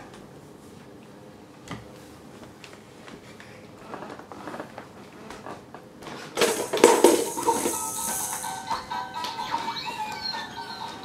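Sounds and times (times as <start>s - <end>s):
toy electronic music: 7.2s - 11.0s.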